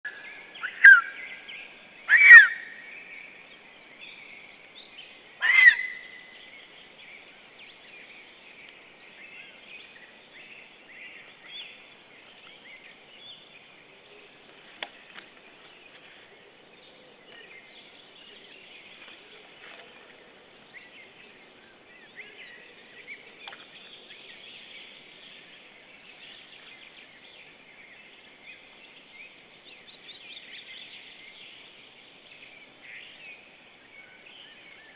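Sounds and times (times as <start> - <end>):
songbirds singing: 0.0 - 34.9
eagle calls: 0.6 - 1.1, 2.1 - 2.7, 5.4 - 6.0.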